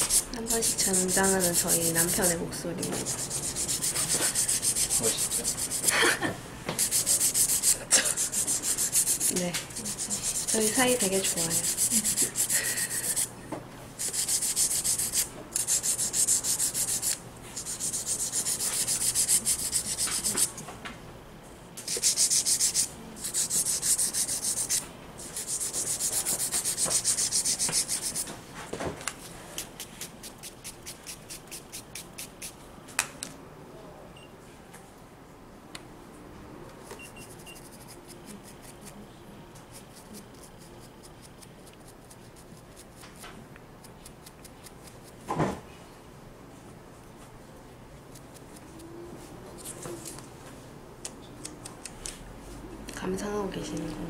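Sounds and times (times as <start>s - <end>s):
nail file scraping fingernails: 0.0s - 5.9s, 6.8s - 13.3s, 14.0s - 20.6s, 21.8s - 28.3s, 29.6s - 32.6s, 37.0s - 39.0s, 39.6s - 43.0s, 49.6s - 50.2s.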